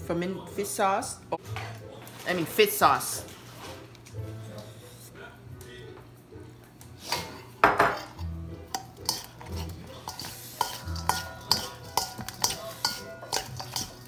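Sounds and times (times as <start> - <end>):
metal spoon knocking on steel bowl: 8.7 - 14.0.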